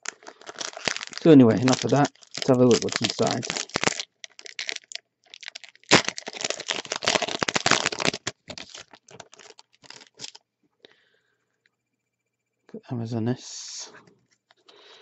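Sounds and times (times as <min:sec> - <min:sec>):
foil wrapper crinkling and tearing: 0:00.0 - 0:10.4.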